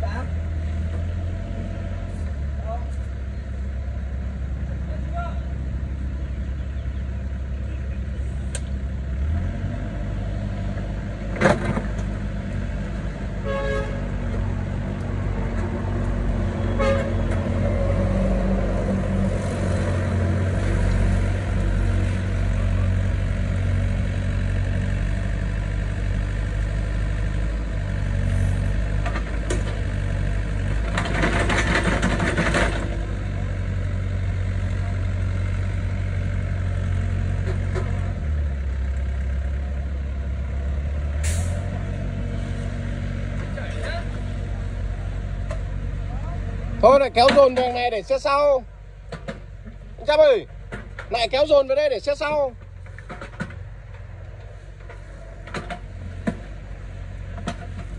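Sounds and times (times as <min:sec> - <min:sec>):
excavator diesel engine running: 0:00.0 - 0:57.9
brief horn toot: 0:13.4 - 0:14.1, 0:16.6 - 0:17.4.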